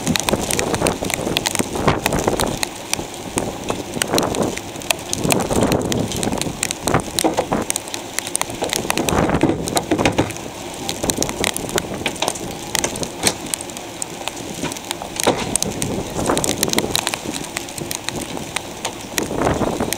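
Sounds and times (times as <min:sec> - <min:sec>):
gusting wind: 0:00.0 - 0:19.9
rain: 0:00.0 - 0:19.9
sharp clicks and knocks: 0:03.6 - 0:13.6, 0:14.2 - 0:19.9.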